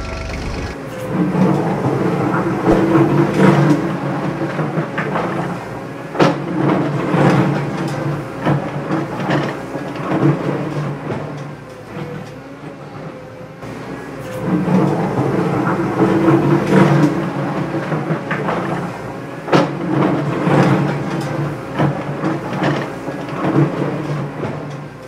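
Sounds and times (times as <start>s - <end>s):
toy excavator motors whirring: 0.0s - 0.8s.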